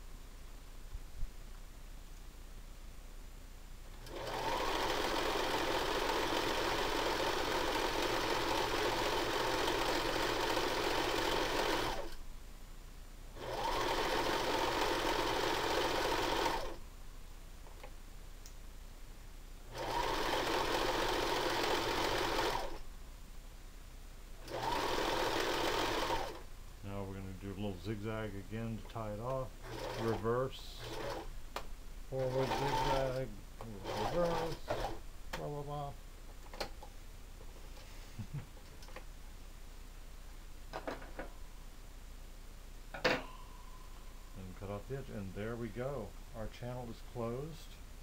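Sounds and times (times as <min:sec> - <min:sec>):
electric sewing machine stitching: 0:04.0 - 0:12.2, 0:13.4 - 0:16.8, 0:19.7 - 0:22.8, 0:24.4 - 0:26.4, 0:29.6 - 0:31.3, 0:32.1 - 0:35.0.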